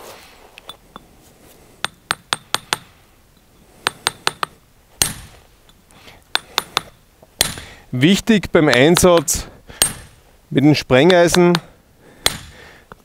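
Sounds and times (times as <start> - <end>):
hammer striking steel chisel: 1.8 - 5.4, 6.3 - 7.7, 8.6 - 10.2, 11.0 - 12.6.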